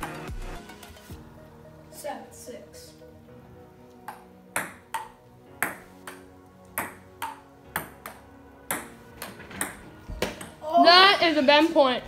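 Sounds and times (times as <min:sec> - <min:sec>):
ping pong ball clicking off paddles: 0:04.1 - 0:06.2, 0:06.8 - 0:10.6.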